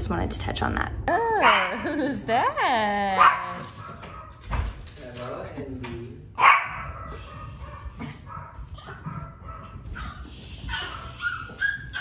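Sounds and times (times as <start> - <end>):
dog barking: 1.4 - 1.8, 3.2 - 4.6, 6.4 - 12.0
dogs whining and yipping: 9.9 - 12.0.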